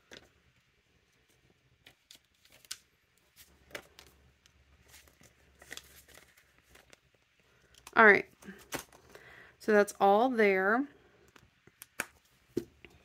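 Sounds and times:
banknotes rustling: 0:01.0 - 0:09.4.

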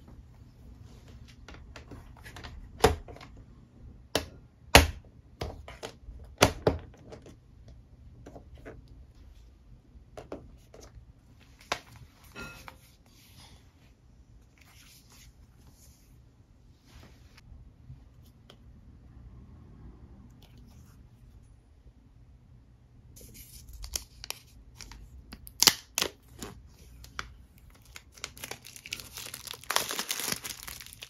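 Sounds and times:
soft handling and rubbing: 0:00.0 - 0:02.4, 0:10.4 - 0:18.8.

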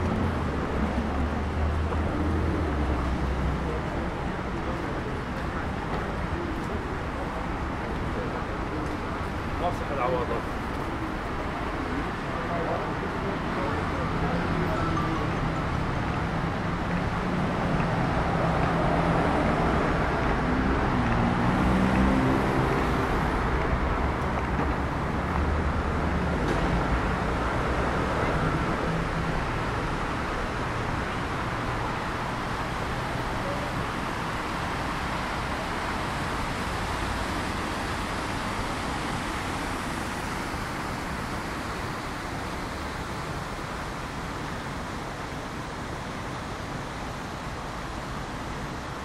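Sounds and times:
vehicles passing on wet street: 0:00.0 - 0:49.0.

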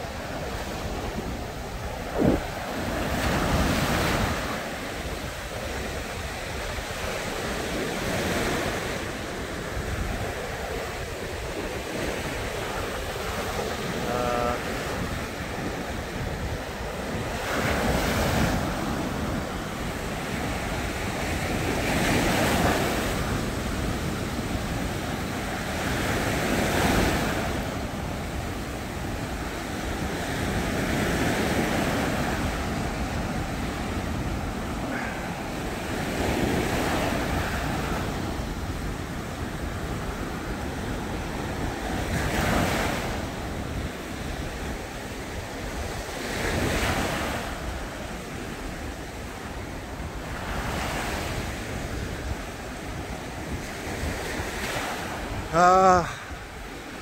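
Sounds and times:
wind rumbling on microphone: 0:00.0 - 0:55.5
waves crashing on beach: 0:00.0 - 0:57.0.

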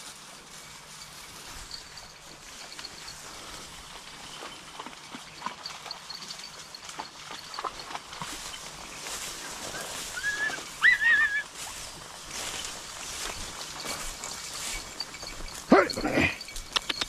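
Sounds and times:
dogs rustling through dry reeds: 0:00.0 - 0:17.0
dog yelping: 0:10.1 - 0:11.6.

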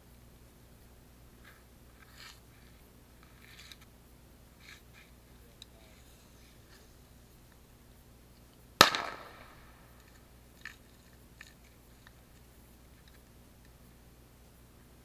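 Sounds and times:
firecracker bang: 0:08.8 - 0:10.0
faint distant pops: 0:08.8 - 0:10.2.

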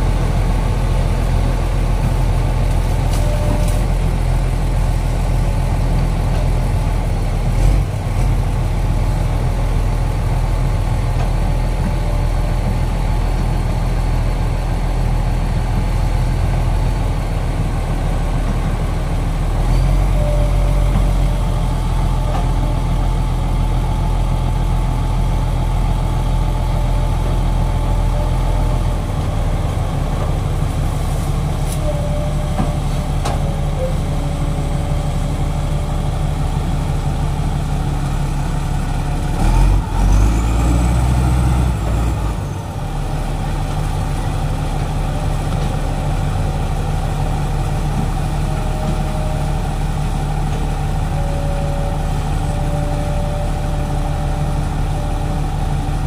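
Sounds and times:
heavy diesel engines running: 0:00.0 - 0:56.0.

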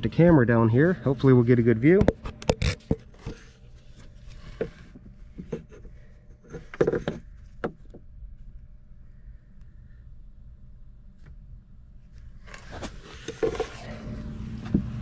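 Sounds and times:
steady low hum: 0:00.0 - 0:15.0
knocks and scrapes against wood: 0:01.8 - 0:08.0, 0:12.4 - 0:15.0.

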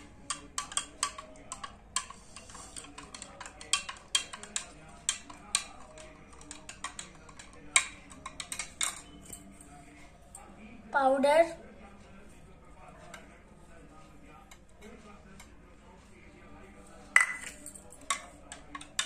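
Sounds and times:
spoon clinking in glass: 0:07.7 - 0:09.6, 0:17.2 - 0:19.0.

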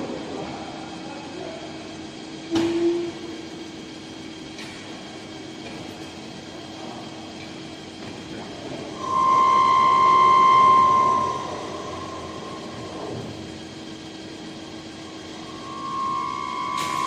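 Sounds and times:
lathe cutting tool ringing: 0:09.0 - 0:17.0
machine humming: 0:09.0 - 0:17.0.

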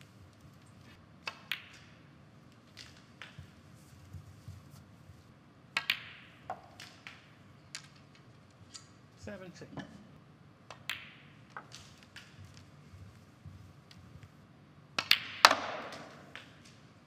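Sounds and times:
faint hall hum: 0:00.0 - 0:17.0
snooker balls clicking: 0:00.5 - 0:03.7, 0:05.7 - 0:09.0, 0:10.6 - 0:12.8, 0:13.8 - 0:17.0.

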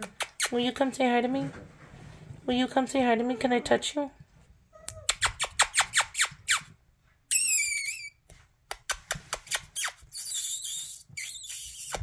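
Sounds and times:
high wavering squeak: 0:07.3 - 0:08.2.

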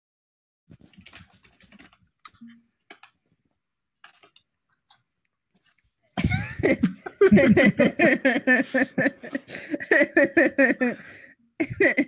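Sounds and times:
faint small clicks and rustles: 0:00.7 - 0:06.1.

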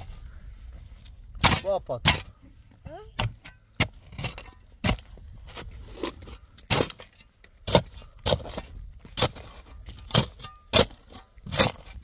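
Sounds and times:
shovel scraping stony soil: 0:03.2 - 0:12.0.

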